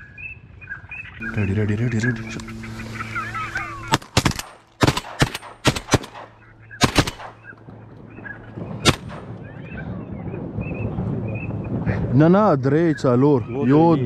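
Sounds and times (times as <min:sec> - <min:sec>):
shotgun shots: 0:03.9 - 0:07.5, 0:08.8 - 0:09.4.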